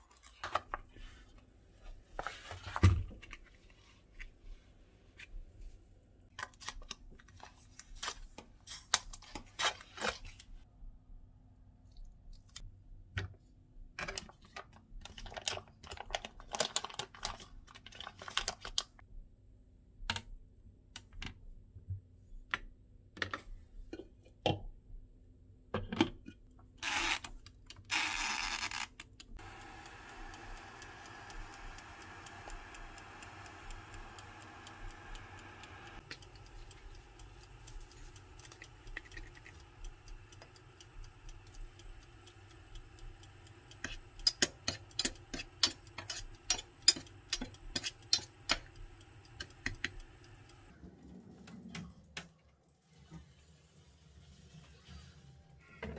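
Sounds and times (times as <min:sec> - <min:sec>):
dial timer ticking: 0:27.9 - 0:50.7
electric steamer humming: 0:29.4 - 0:50.7.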